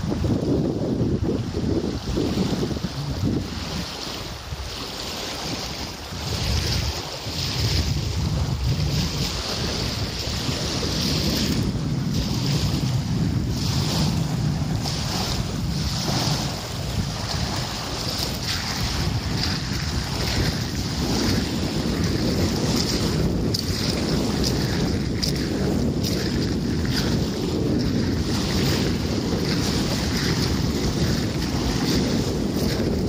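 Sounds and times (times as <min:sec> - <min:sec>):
wind rumbling on microphone: 0:00.0 - 0:33.0
waves breaking on shingle: 0:08.5 - 0:33.0.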